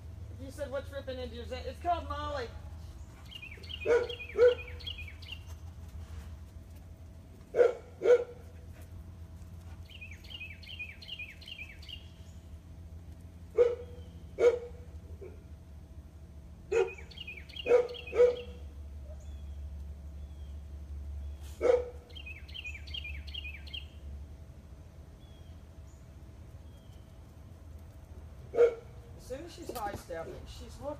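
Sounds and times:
songbird singing falling notes: 3.2s - 5.6s, 9.8s - 12.2s
dog barking: 3.8s - 4.8s, 7.5s - 8.4s, 13.5s - 15.4s, 16.7s - 19.2s, 21.6s - 22.0s, 28.5s - 29.0s.

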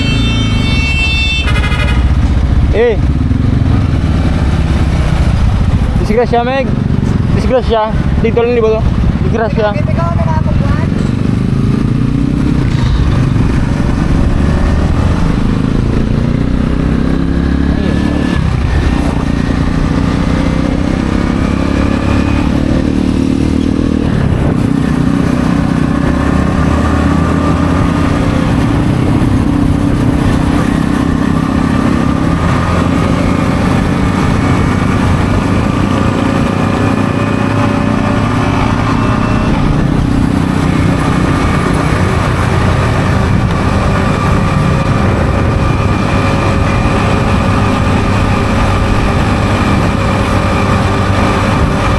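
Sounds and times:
motorcycle engine accelerating: 1.4s - 51.9s.

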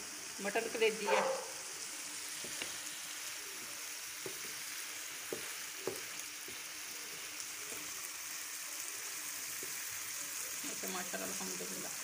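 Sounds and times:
liver sizzling in a frying pan: 0.0s - 12.0s
spatula knocking against pan: 5.3s - 6.6s.

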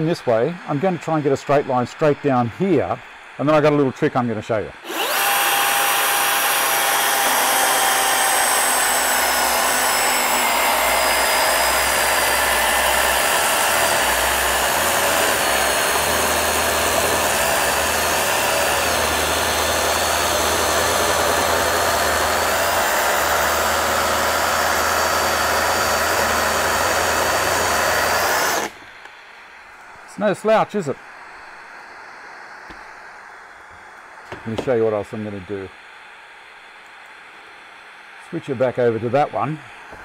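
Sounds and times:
battery chainsaw cutting log: 4.8s - 28.8s.

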